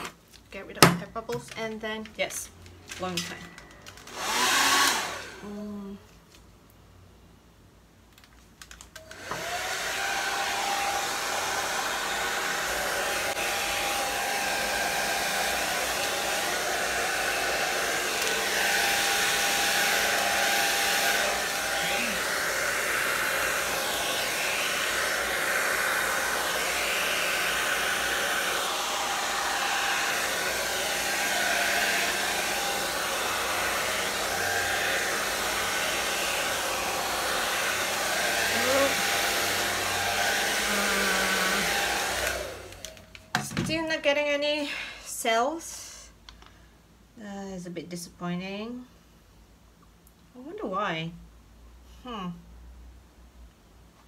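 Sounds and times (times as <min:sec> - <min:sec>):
hair dryer whining: 0:00.8 - 0:05.9, 0:09.0 - 0:45.6.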